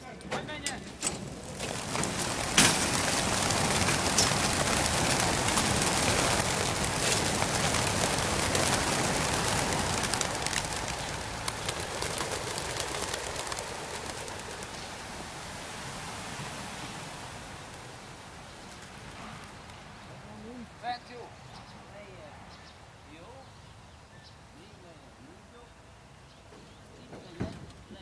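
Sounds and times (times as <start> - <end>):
pigeon wingbeats: 1.1 - 19.7.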